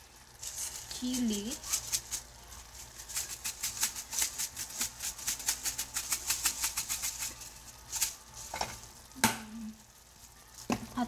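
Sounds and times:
chili flakes rattling in jar: 0.3 - 9.1.

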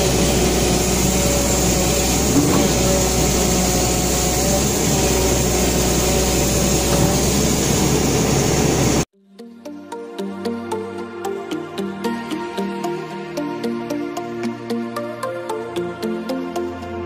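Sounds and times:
excavator engine running: 0.0 - 9.1.

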